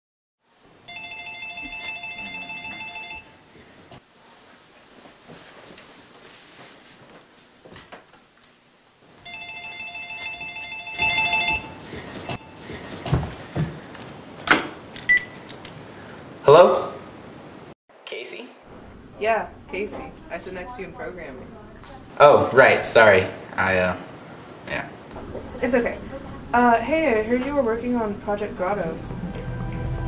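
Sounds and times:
phone electronic ring tone: 0.9 - 3.4, 9.2 - 12.6.

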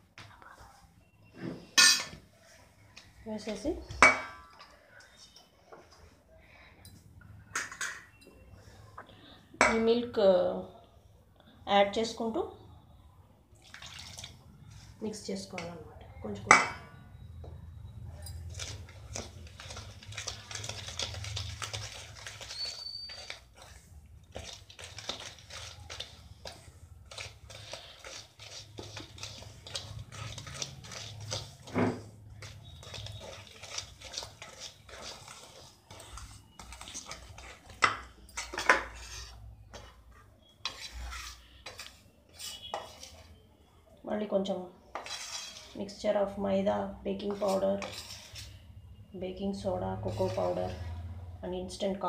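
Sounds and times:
wire whisk scraping steel bowl: 18.3 - 43.4, 44.9 - 45.8, 47.2 - 48.6, 50.0 - 50.8.

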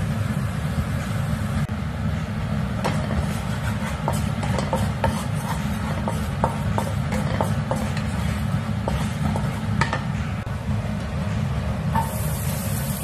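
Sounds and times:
spatula scraping and tapping pan: 2.8 - 10.1
low steady rumble: 7.8 - 13.0
garlic sizzling in hot oil: 12.0 - 13.0.

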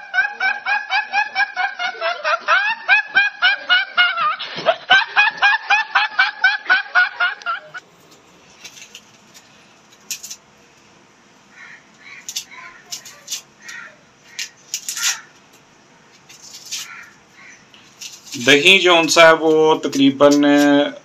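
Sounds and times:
boy giggling: 0.0 - 7.8.

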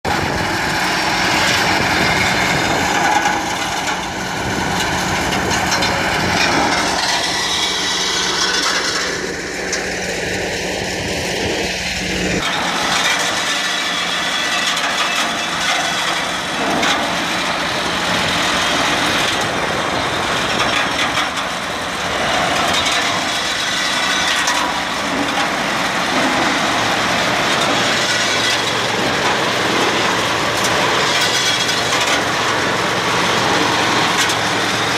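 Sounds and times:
harvester clattering: 0.0 - 34.9
tractor engine running: 0.0 - 34.9.

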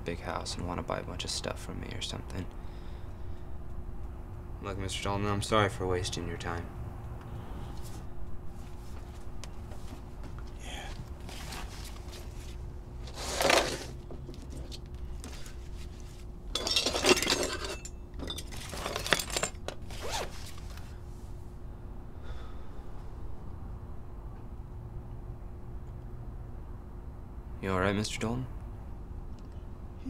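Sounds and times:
faint steady hum: 0.0 - 30.0
items scraping and rustling: 8.6 - 21.0.

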